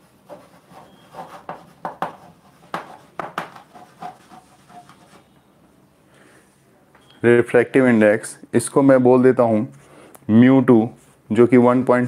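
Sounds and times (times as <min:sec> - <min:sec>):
chalk writing on a chalkboard: 0:00.0 - 0:05.3.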